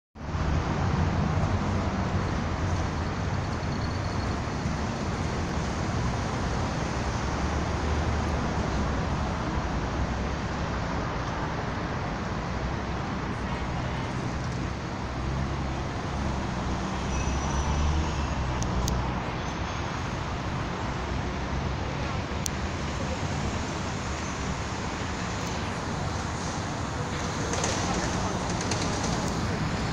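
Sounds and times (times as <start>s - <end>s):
city traffic rumble: 0.2s - 29.9s.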